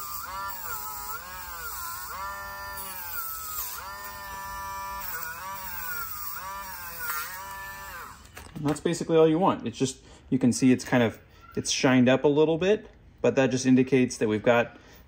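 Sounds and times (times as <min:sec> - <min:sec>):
rotary tool whining: 0:00.0 - 0:08.5.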